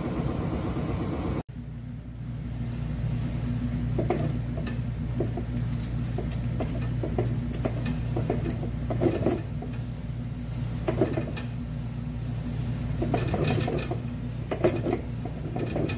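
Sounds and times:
gear clicks and knocks: 4.0s - 9.8s.

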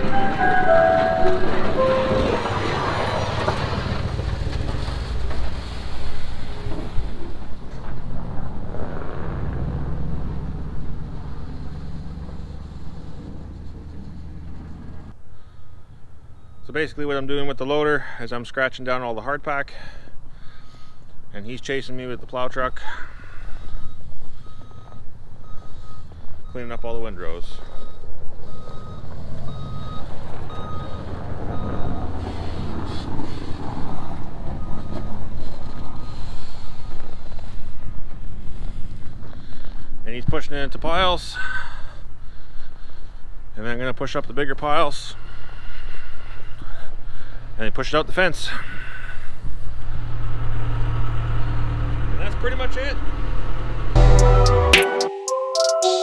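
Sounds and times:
backup alarm beeping: 0.0s - 3.4s, 23.6s - 32.0s
loader engine running: 0.0s - 15.2s, 53.0s - 55.0s
diesel engine running under load: 0.0s - 16.7s, 23.2s - 26.8s, 27.4s - 40.0s, 48.7s - 54.6s.

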